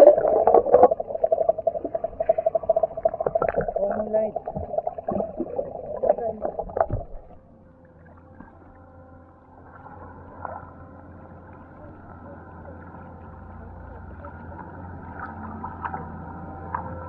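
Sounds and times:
low steady rumble: 0.0 - 17.0.

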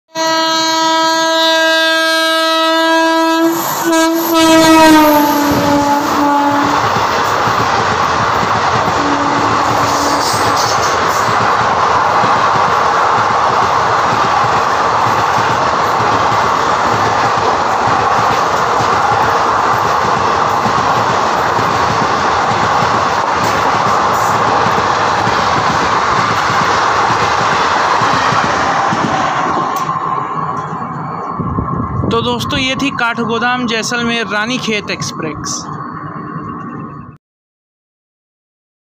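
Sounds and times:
electric locomotive horn blast: 0.1 - 6.8, 9.0 - 10.8
train coaches rushing and clattering: 1.8 - 37.2.

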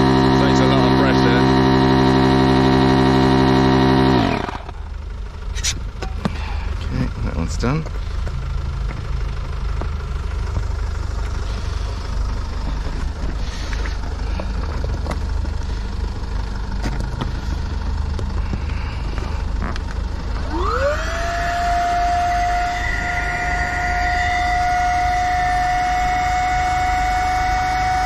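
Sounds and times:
electric pump motor whine: 0.0 - 5.0, 16.8 - 28.0
steady low rumble: 0.0 - 28.0.

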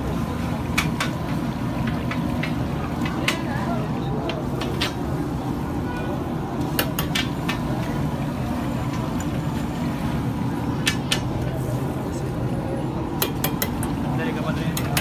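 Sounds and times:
crowd chatter: 2.3 - 15.0.

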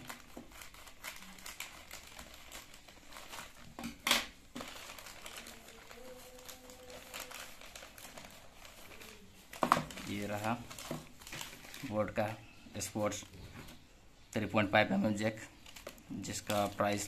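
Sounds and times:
scissors cutting plastic: 0.0 - 11.8
plastic bag crinkling: 0.0 - 13.8, 15.1 - 17.0.

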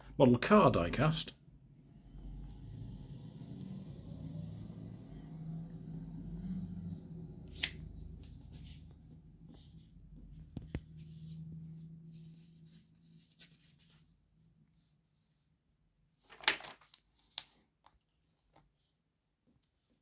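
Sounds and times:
low hum: 1.4 - 13.1
paper rustling: 12.1 - 14.2, 16.2 - 19.0.

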